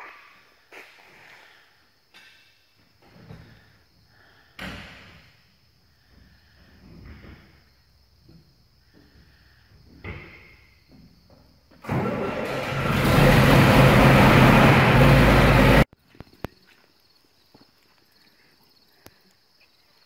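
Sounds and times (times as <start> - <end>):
loud machine roaring: 11.8 - 15.9
low hum: 12.7 - 15.9.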